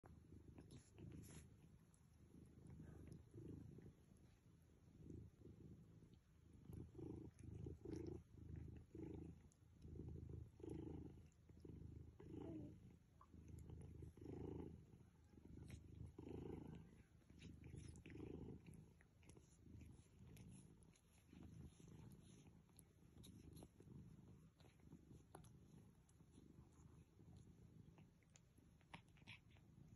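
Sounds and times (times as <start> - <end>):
cat purring: 0.0 - 29.9.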